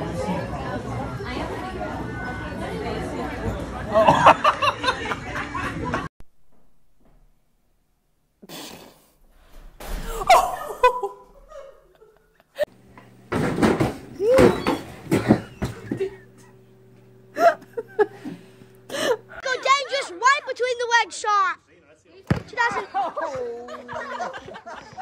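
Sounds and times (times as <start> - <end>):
loud thud: 6.3 - 7.6, 9.2 - 10.6
low hum: 9.2 - 19.4
people laughing and shrieking: 10.0 - 12.4, 17.4 - 20.8.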